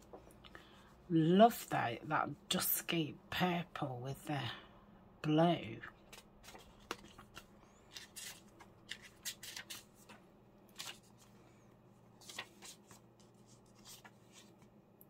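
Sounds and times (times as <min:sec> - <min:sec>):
paper pages rustling: 0:06.0 - 0:11.4, 0:12.2 - 0:14.8.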